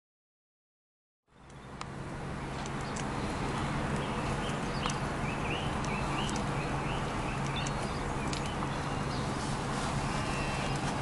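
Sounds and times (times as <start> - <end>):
scattered clicks: 2.6 - 3.1, 7.4 - 8.6.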